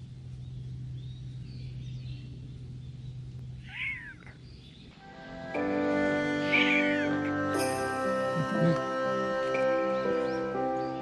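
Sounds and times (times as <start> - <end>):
steady low hum: 0.0 - 6.5
cat meowing: 3.6 - 4.4, 6.5 - 7.1
gentle background music: 5.0 - 11.0.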